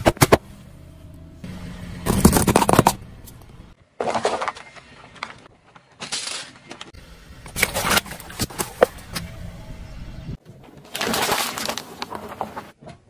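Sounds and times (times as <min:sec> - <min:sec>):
car tyre crunching objects: 0:02.0 - 0:06.7.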